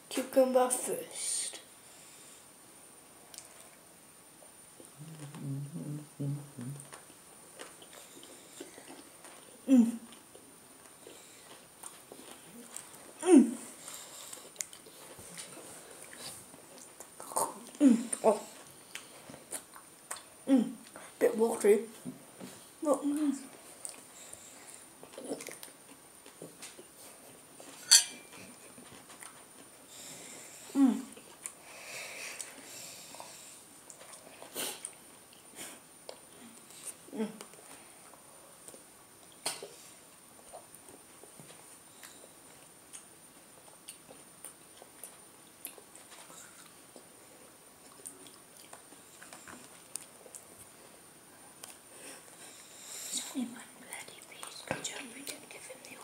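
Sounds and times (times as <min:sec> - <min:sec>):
hummed throat sound: 0:04.8 - 0:06.9
person chewing cucumber: 0:06.6 - 0:21.0, 0:23.7 - 0:27.8, 0:28.4 - 0:29.8, 0:32.4 - 0:50.9.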